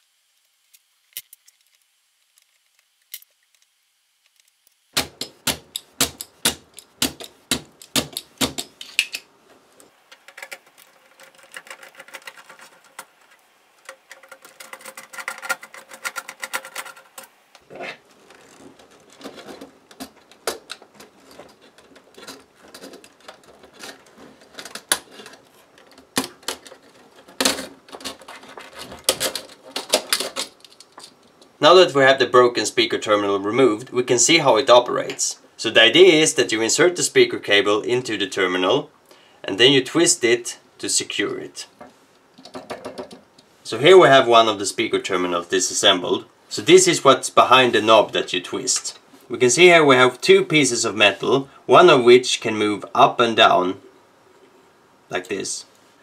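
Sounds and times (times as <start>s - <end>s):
plastic parts knocking: 5.0s - 9.2s, 10.1s - 17.3s, 18.2s - 31.5s, 41.8s - 43.4s.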